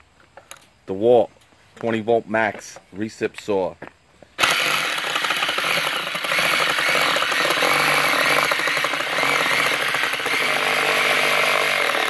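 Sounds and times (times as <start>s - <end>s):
reciprocating saw cutting plywood: 4.4s - 12.0s.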